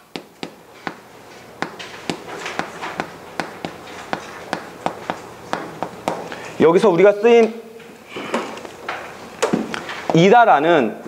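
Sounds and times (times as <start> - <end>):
chalk tapping on chalkboard: 0.0 - 6.4.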